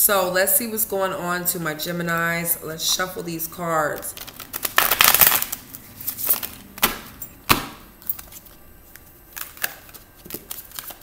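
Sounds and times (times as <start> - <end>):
card slaps: 6.3 - 7.8.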